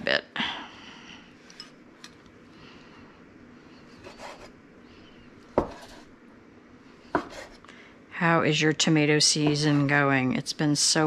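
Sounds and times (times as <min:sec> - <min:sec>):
knife slicing tomatoes on board: 0:04.0 - 0:04.5, 0:05.6 - 0:06.1, 0:07.2 - 0:07.6.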